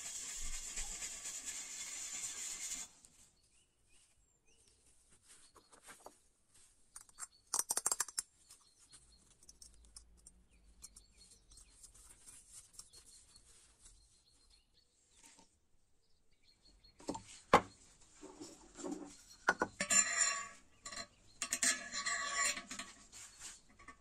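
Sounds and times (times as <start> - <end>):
steel wool scrubbing metal: 0.0 - 2.9, 19.8 - 24.0
metal lid clicks and scrapes: 19.5 - 23.0.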